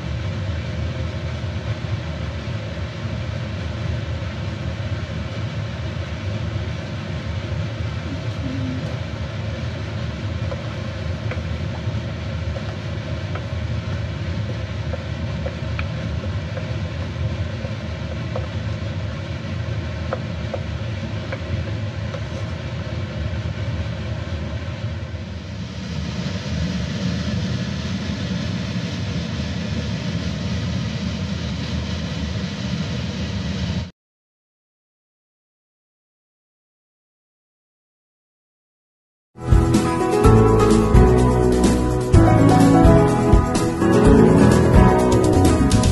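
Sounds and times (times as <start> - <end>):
gas burner rumble: 0.0 - 33.9.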